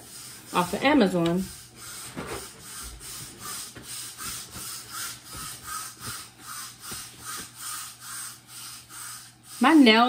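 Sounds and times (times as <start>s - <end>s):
paper towel rustling: 0.5s - 7.6s.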